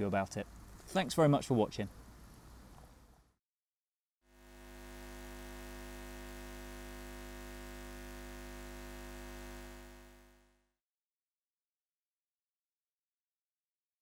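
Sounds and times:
electronic drone: 4.3 - 10.6.

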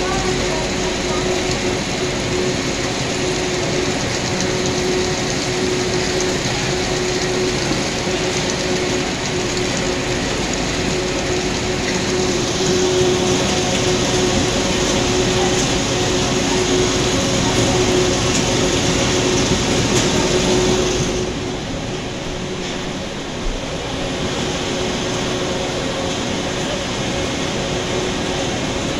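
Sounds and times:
conveyor machinery hum: 0.0 - 28.9
machinery clatter: 0.0 - 28.9.

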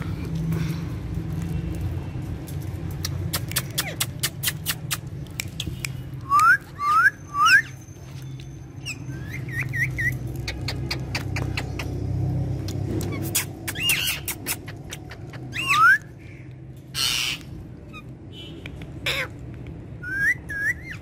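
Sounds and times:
parakeets whistling: 6.3 - 11.8, 13.0 - 16.1, 20.0 - 21.0
parakeet chirps: 6.6 - 12.0, 12.7 - 16.1, 16.9 - 18.1, 20.0 - 21.0.

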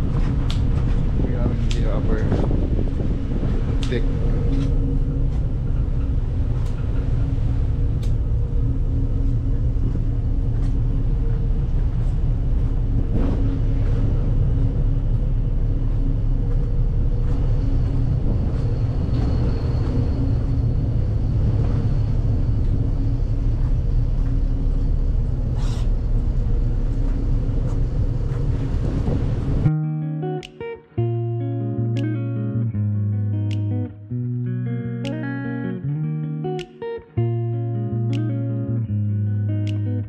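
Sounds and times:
ferry engines rumbling: 0.0 - 29.7.

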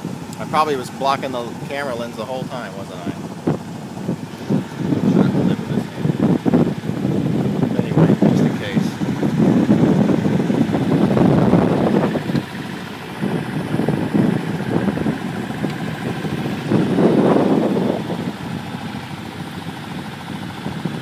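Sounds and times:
boat engine running: 0.0 - 21.0
wind buffeting microphone: 0.0 - 21.0
wind rushing: 3.1 - 12.3, 13.0 - 18.6.

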